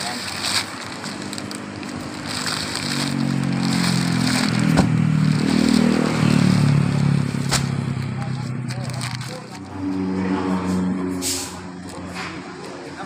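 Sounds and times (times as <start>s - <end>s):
paper sacks scraping and sliding: 0.0s - 9.8s
vehicle engine running: 0.0s - 12.9s.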